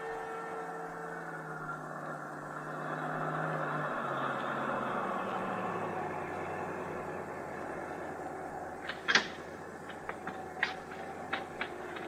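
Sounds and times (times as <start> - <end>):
music bridge: 0.0 - 3.1
bus engine slowing: 0.0 - 12.0.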